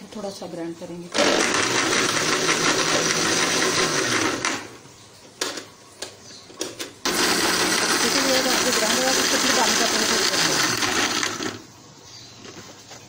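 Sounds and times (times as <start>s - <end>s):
mixer grinder blending: 1.1s - 4.8s, 7.1s - 11.7s.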